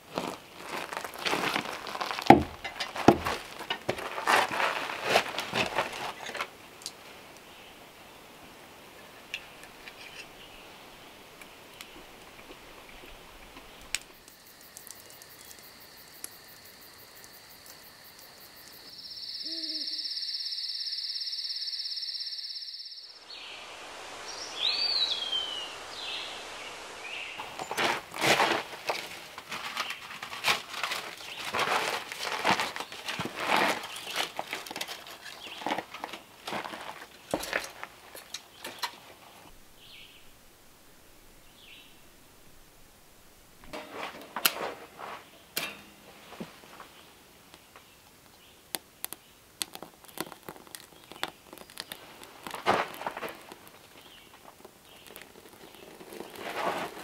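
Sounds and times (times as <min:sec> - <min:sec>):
night insect chorus: 0:14.1 - 0:28.7
owl hooting: 0:18.9 - 0:26.8
bird call: 0:18.9 - 0:27.8.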